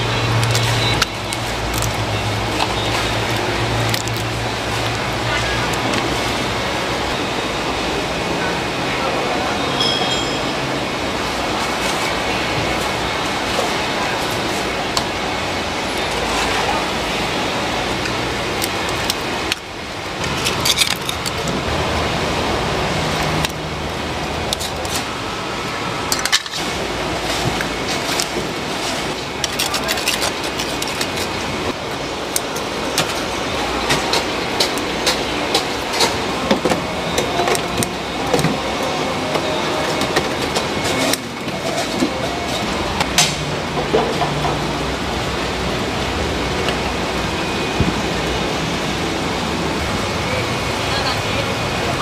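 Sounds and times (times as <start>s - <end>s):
indistinct voices: 0.0s - 52.0s.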